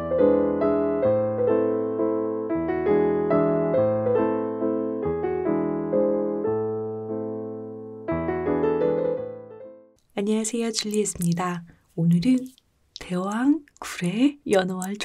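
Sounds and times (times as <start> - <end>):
soft piano music: 0.0 - 10.0.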